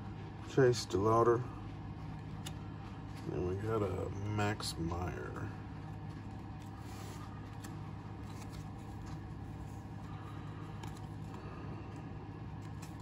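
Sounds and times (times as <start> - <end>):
steady low hum: 0.0 - 13.0
cards being flipped through: 6.0 - 10.1, 10.7 - 11.4, 12.4 - 13.0.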